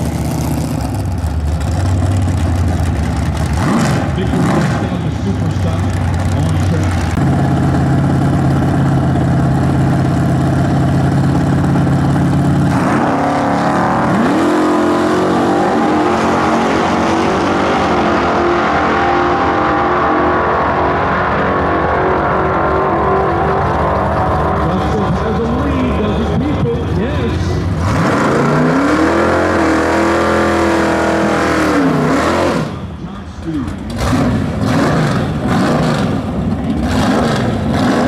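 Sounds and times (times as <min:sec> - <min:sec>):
car engines revving and accelerating: 0:00.0 - 0:38.0.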